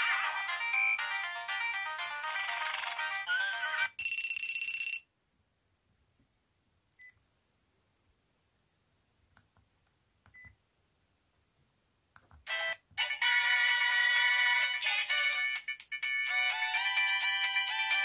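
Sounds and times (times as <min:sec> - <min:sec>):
pulsing electronic buzzer ringtone: 0:04.0 - 0:05.0.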